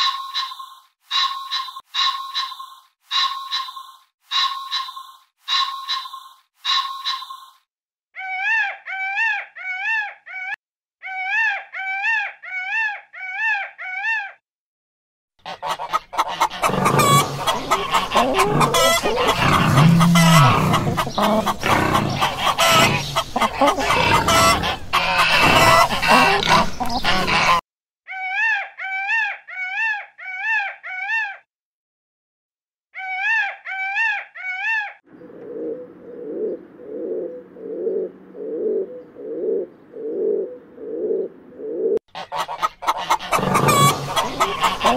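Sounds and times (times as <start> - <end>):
turkeys gobbling: 0.0 - 7.4, 15.5 - 27.6, 41.9 - 44.9
poultry calling: 0.0 - 7.6, 15.4 - 31.4, 41.9 - 44.9.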